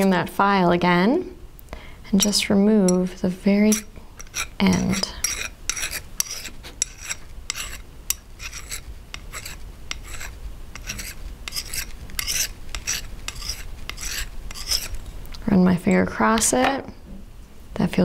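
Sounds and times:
hand file rasping on metal wire: 3.7 - 15.0.

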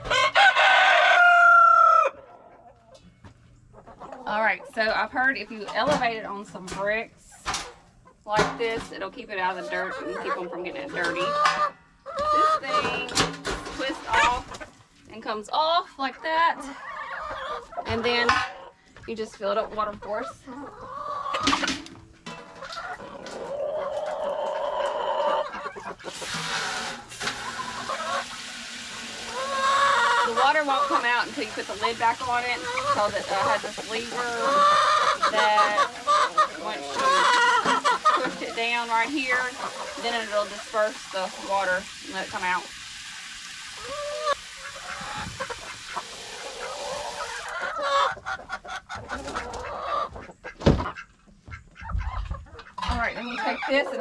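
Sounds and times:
chickens clucking: 0.0 - 54.0
hose water filling metal container: 12.3 - 14.6, 25.9 - 47.7.

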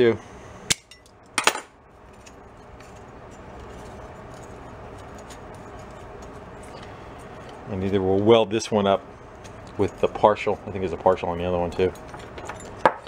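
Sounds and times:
pliers clattering on workbench: 0.8 - 1.7
metal hand tools clinking: 9.7 - 13.0.

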